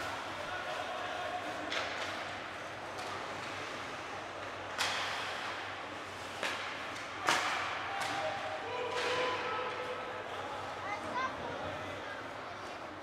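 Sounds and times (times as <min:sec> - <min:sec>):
hockey stick hitting puck: 0:04.8 - 0:05.6, 0:06.3 - 0:09.5.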